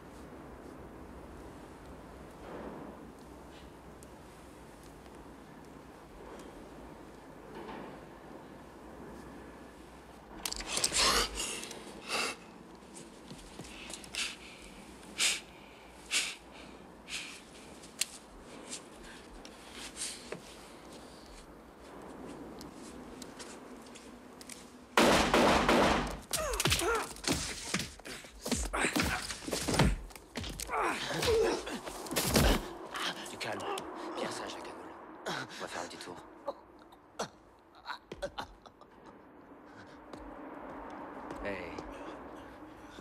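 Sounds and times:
sharp knocks and thuds: 25.0 - 32.7
scuffle: 26.4 - 32.7.

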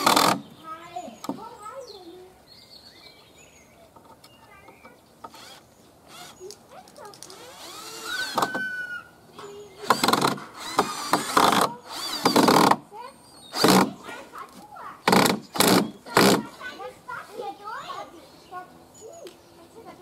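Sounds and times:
cordless drill driving screws: 0.0 - 0.4, 5.2 - 6.4, 7.3 - 9.0, 9.8 - 12.8, 13.5 - 14.0, 15.1 - 16.4.

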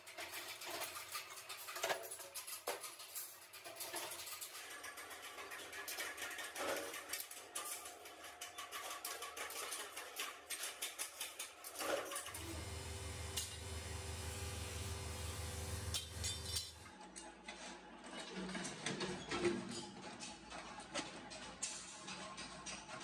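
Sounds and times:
steel parts clinking and rattling: 0.0 - 16.9
low machine hum: 12.3 - 16.9.

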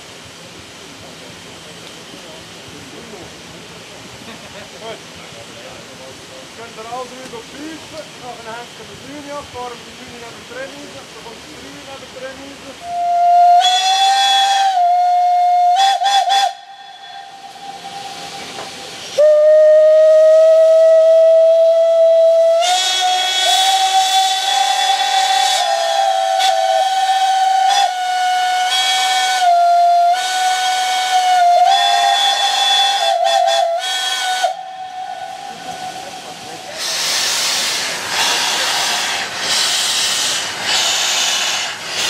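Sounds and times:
steam hissing: 0.0 - 42.0
steam whistles: 12.8 - 42.0.

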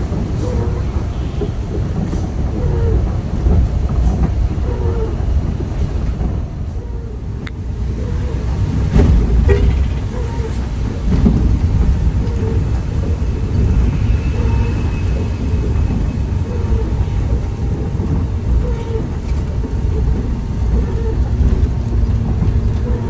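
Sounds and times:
bus engine and tyres rumbling: 0.0 - 23.0.

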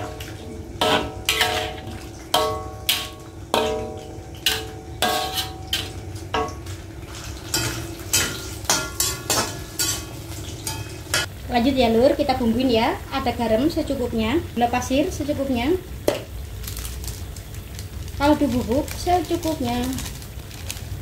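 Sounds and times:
metal spatula knocking in wok: 0.8 - 6.6.

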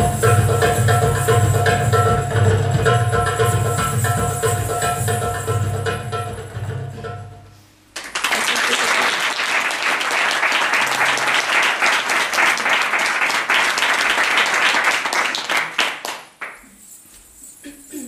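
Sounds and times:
audience applauding: 8.0 - 16.6.

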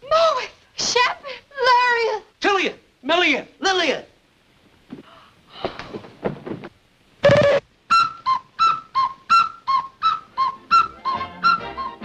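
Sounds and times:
high whistle alternating two notes: 7.3 - 12.0
low held whistle note: 7.4 - 12.0.

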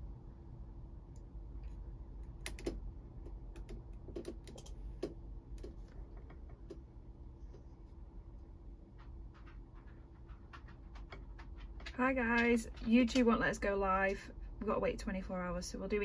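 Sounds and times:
low steady hum: 0.0 - 16.0
computer keyboard typing: 2.3 - 5.8.

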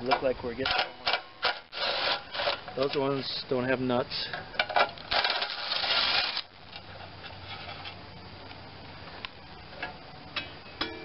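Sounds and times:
loose metal parts rattling: 0.0 - 3.4, 4.1 - 8.0.

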